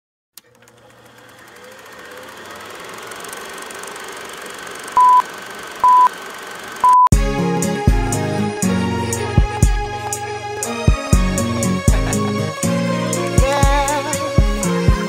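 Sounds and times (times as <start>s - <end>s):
short beeps: 5.0s - 5.2s, 5.8s - 6.1s, 6.8s - 7.1s
music: 7.1s - 15.0s.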